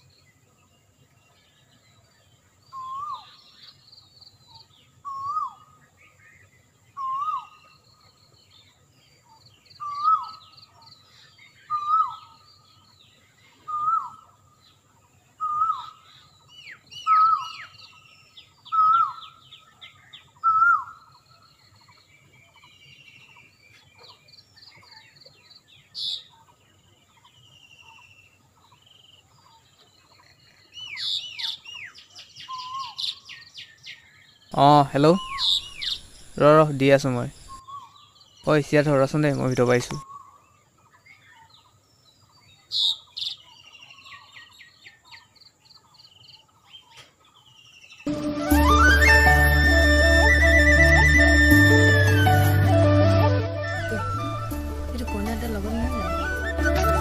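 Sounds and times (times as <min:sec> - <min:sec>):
birds chirping: 0:00.0 - 0:57.0
bird whistled call: 0:02.7 - 0:03.4, 0:05.0 - 0:05.7, 0:07.0 - 0:07.6, 0:11.6 - 0:12.3, 0:13.6 - 0:14.3, 0:15.4 - 0:16.0, 0:16.7 - 0:17.9, 0:18.7 - 0:19.4, 0:20.4 - 0:21.1, 0:30.8 - 0:33.4, 0:35.2 - 0:36.5, 0:48.1 - 0:57.0
sharp high bird chirp: 0:34.5 - 0:38.6.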